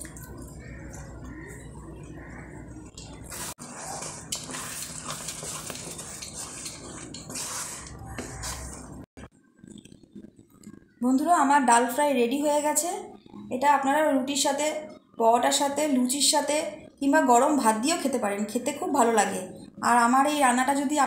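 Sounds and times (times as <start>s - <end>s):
wet squelching: 0.0s - 9.0s
spatula scraping a metal pan: 2.9s - 9.1s.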